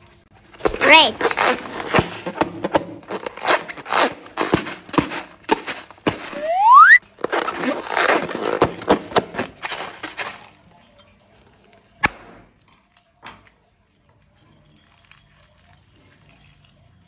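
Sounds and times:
slime and balloons crackling: 0.6 - 2.4, 3.1 - 10.4.

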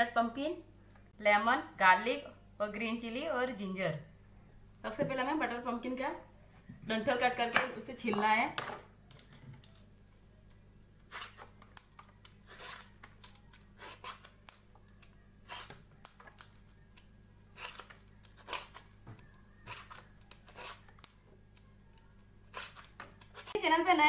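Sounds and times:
vegetable peeler scraping squash skin: 11.1 - 11.6, 12.4 - 18.9, 19.6 - 21.2, 22.4 - 23.6.

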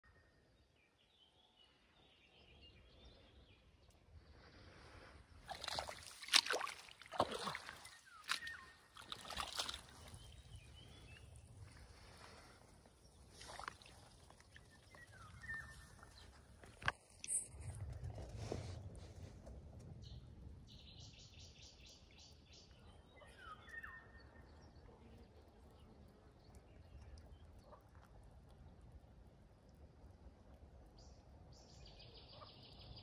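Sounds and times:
crunching steps on dry soil: 5.4 - 17.0
low wind rumble: 17.4 - 22.1
faint bird chirps: 31.7 - 33.0.

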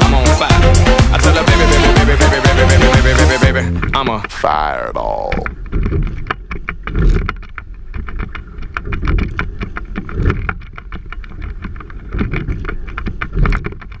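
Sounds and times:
oars and rigging clicking: 2.8 - 14.0.

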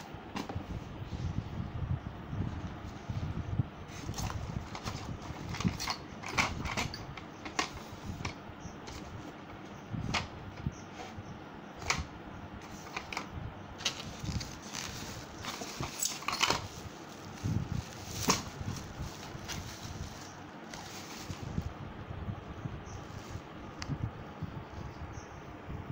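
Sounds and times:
parts clicking and knocking: 4.2 - 9.1, 11.8 - 16.8
plastic wrapping crinkling: 13.8 - 21.6.

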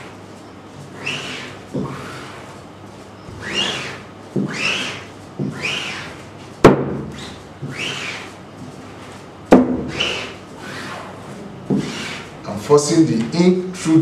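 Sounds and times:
squeegee rasping across mesh: 0.8 - 2.6, 3.4 - 6.2, 7.1 - 8.4, 11.8 - 12.4
sharp knocks: 6.6 - 7.9, 9.5 - 10.3.

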